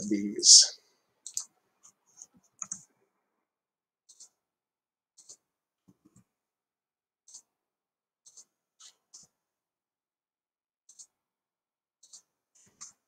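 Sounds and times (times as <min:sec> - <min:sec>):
computer mouse clicks: 0:01.2 - 0:01.5, 0:02.2 - 0:02.9, 0:04.1 - 0:04.4, 0:05.2 - 0:05.5, 0:07.3 - 0:07.5, 0:08.2 - 0:09.3, 0:10.9 - 0:11.2, 0:12.0 - 0:13.0.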